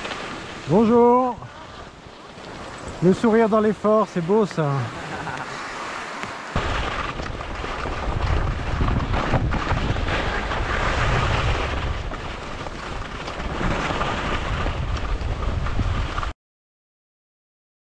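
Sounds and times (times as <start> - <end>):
skis sliding over snow: 0.0 - 16.3
wind buffeting microphone: 6.6 - 16.3.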